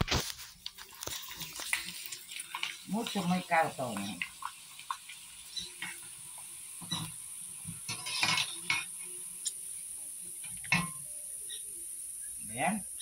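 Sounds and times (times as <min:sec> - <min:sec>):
hot oil sizzling: 0:00.0 - 0:13.0
metal utensils clinking on pan: 0:06.8 - 0:07.2, 0:07.8 - 0:09.0, 0:10.4 - 0:11.0.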